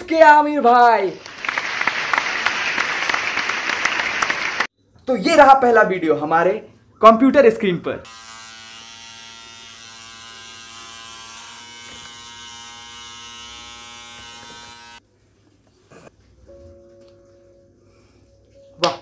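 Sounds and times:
electric hair trimmer buzzing: 8.0 - 15.0.

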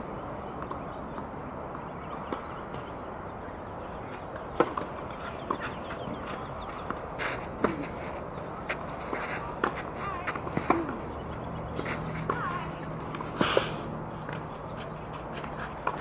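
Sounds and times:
shoe scuff on court: 5.2 - 11.0
racket hitting tennis ball: 8.8 - 11.1.

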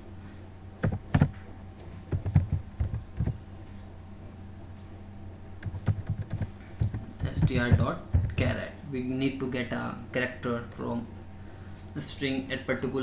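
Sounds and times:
faint low hum: 0.0 - 13.0
keyboard keystrokes clicking: 5.6 - 8.4.

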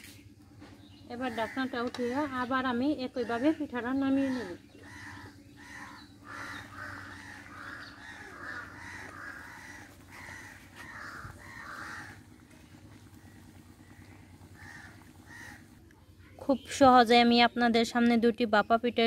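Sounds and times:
crows cawing: 1.2 - 15.8.

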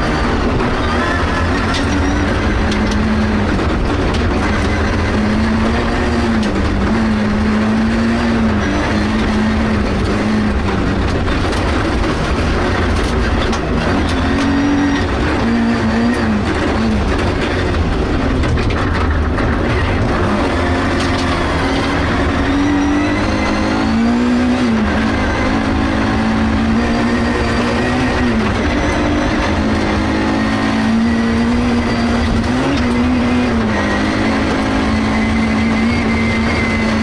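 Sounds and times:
rally car engine revving: 0.0 - 37.0
tyre and road rumble: 0.0 - 37.0.

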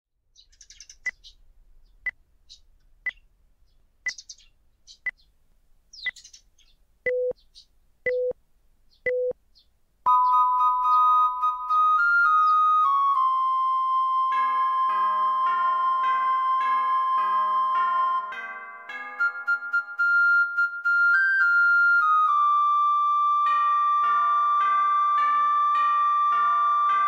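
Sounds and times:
small birds chirping: 0.2 - 13.4
clock ticking: 0.9 - 1.2, 8.1 - 8.4
short beeps: 7.1 - 7.4, 8.1 - 8.4, 9.1 - 9.4
long high tone: 10.1 - 27.0.

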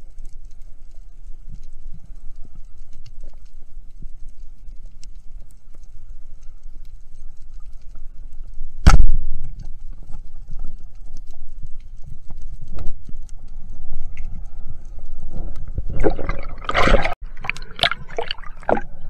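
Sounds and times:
faint crackling ticks: 0.0 - 8.8, 9.4 - 15.8
low water rumble: 0.0 - 19.0.

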